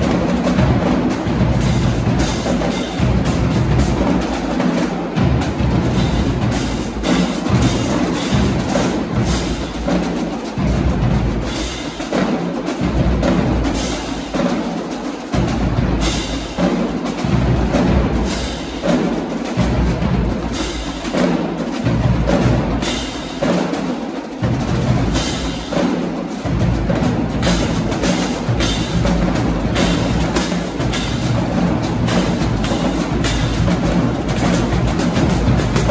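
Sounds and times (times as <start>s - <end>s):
bass drums: 0.0s - 9.9s, 26.4s - 35.9s.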